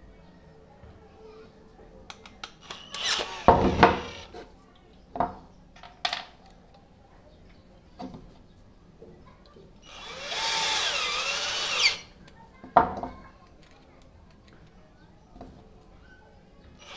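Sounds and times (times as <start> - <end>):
drill motor whirring: 2.6 - 4.3, 9.8 - 12.1.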